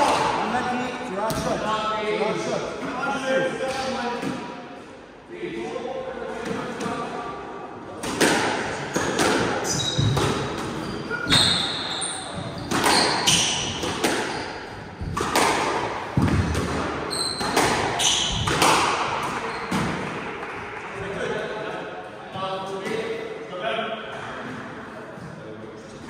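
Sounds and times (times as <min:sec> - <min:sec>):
squash ball hitting rackets and walls: 0:00.0 - 0:01.7, 0:07.9 - 0:20.8
shoe squeaks on wooden floor: 0:09.6 - 0:10.2, 0:10.8 - 0:13.6, 0:17.1 - 0:18.4.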